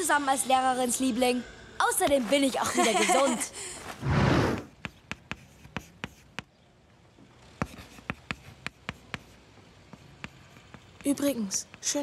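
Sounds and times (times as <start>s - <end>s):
writing tool tapping: 4.8s - 6.6s, 7.6s - 12.0s.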